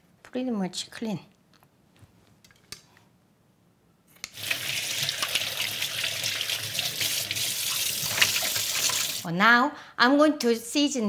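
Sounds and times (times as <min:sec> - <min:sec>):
tap water running into sink: 0:04.3 - 0:09.2
hands rinsing under water: 0:04.4 - 0:09.2.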